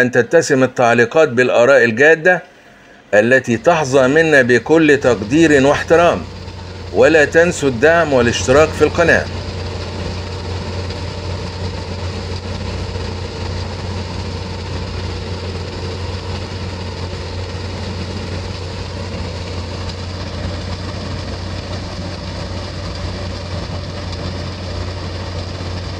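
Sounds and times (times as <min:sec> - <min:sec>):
low mechanical hum: 0:00.0 - 0:25.9
constant hiss: 0:00.5 - 0:11.7.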